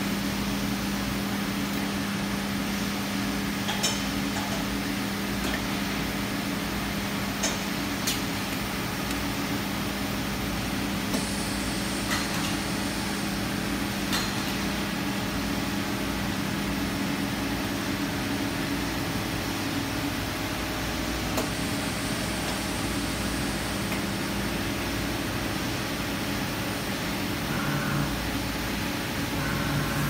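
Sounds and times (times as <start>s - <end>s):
machine pumps humming: 0.0s - 30.0s
machine ram whine: 27.2s - 30.0s.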